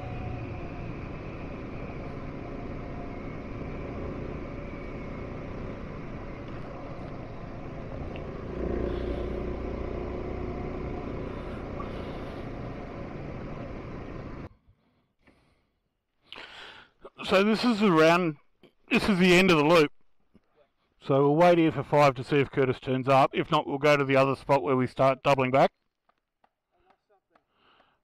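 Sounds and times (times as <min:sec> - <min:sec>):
motorcycle engine running: 0:00.0 - 0:14.5.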